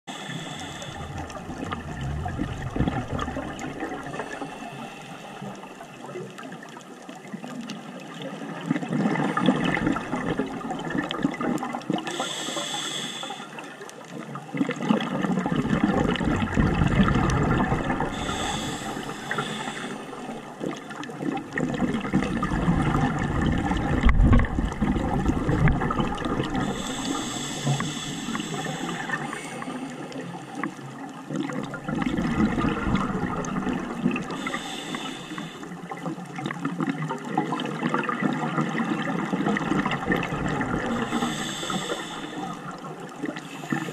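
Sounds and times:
regulator hissing on inhale: 0.1 - 6.0, 12.1 - 13.8, 17.9 - 20.5, 26.5 - 30.7, 33.5 - 35.8, 40.7 - 43.9
gurgling exhaled bubbles: 0.1 - 12.4, 13.5 - 43.9.

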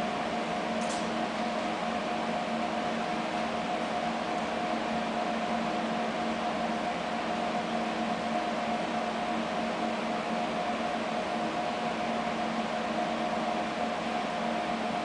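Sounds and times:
machinery and ventilation hum: 0.0 - 15.0.

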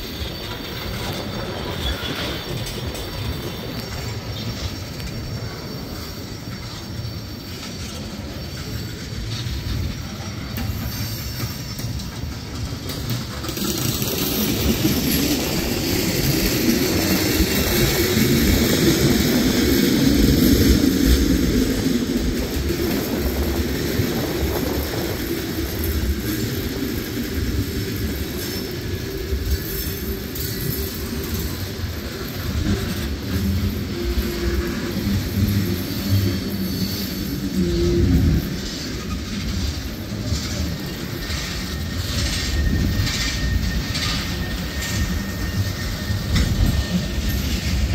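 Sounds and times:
freight train wheels rumbling: 0.0 - 47.9.

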